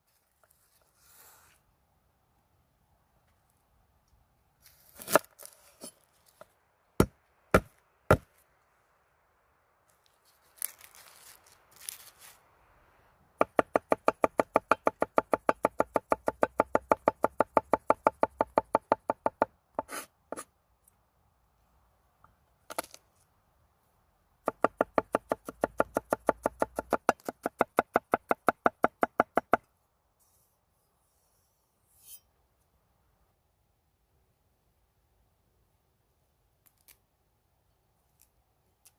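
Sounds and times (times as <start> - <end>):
knife chopping on wooden board: 7.0 - 8.3, 24.4 - 29.6.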